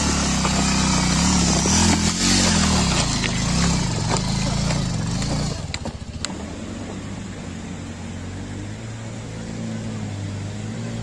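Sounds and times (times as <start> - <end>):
motorcycle engine revving: 0.0 - 11.0
sharp knocks on rocks: 1.5 - 5.9.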